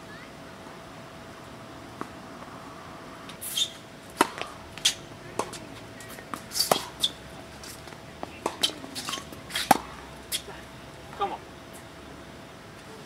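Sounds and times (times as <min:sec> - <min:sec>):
tennis ball off racket: 0:03.3 - 0:10.5
tennis ball bouncing on court: 0:04.2 - 0:07.2, 0:07.8 - 0:10.4.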